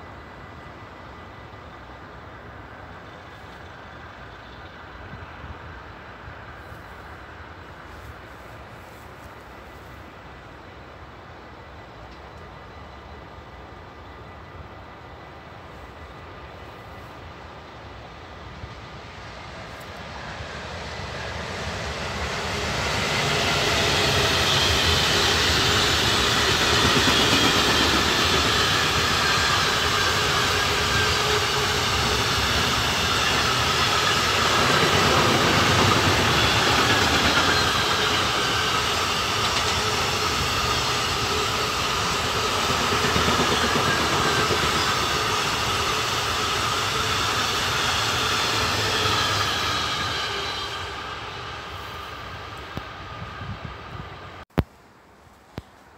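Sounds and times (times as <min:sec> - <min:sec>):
train wheels rumbling on rail: 0:00.0 - 0:54.4
wheels squealing: 0:23.0 - 0:52.3.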